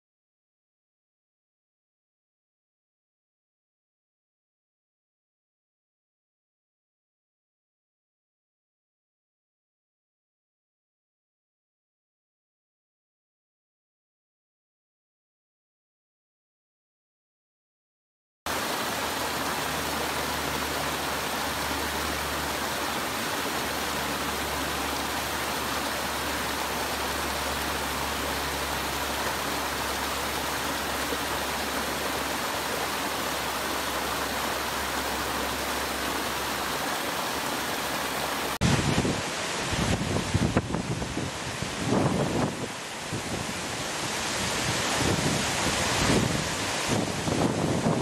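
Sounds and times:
waterfall rushing: 18.5 - 48.0
wind buffeting microphone: 38.6 - 48.0.

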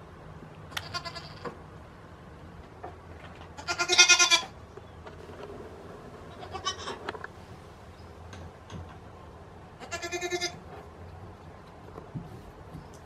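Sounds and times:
goat bleating: 0.7 - 1.4, 3.6 - 4.6, 6.3 - 7.0, 9.8 - 10.6.

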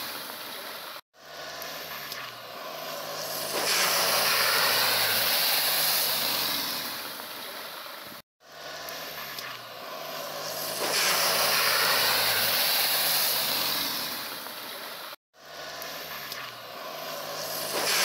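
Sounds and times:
loud hissing roar: 1.2 - 7.1, 8.5 - 14.4.

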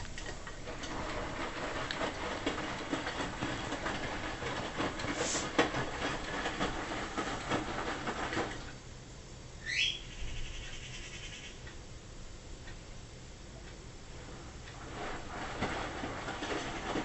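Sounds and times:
washing machine drum tumbling: 0.0 - 8.7, 14.7 - 17.0.

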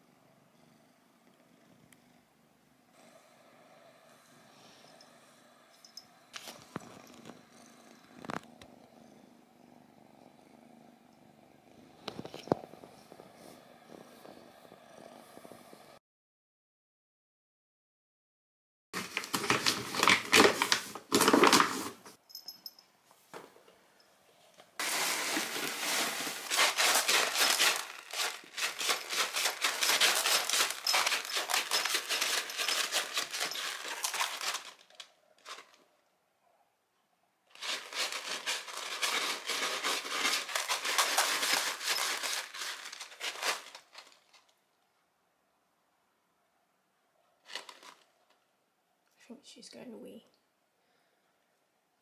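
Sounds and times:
kitten scratching in litter: 24.8 - 35.8, 37.5 - 44.3.

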